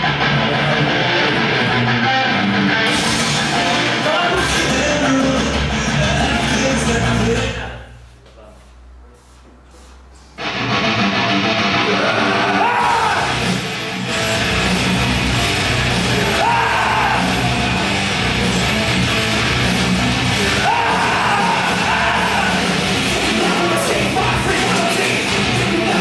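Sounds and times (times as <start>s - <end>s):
heavy rock music: 0.0s - 7.8s, 10.4s - 26.0s
shouted vocal: 11.8s - 13.5s, 16.0s - 18.0s, 20.3s - 26.0s.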